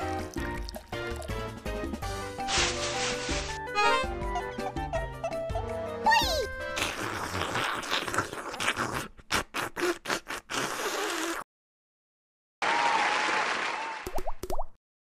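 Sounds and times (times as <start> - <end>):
crowd applause: 12.6 - 14.1.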